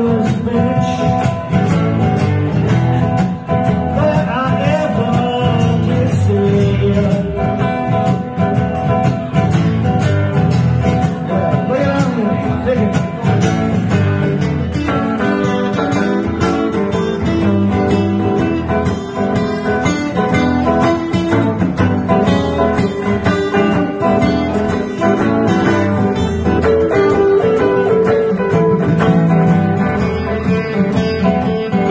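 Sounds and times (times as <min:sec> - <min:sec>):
man singing: 0:00.0 - 0:01.7, 0:03.0 - 0:08.3, 0:10.9 - 0:13.7
blues on acoustic guitar: 0:00.0 - 0:31.9
electric guitar: 0:00.0 - 0:31.9.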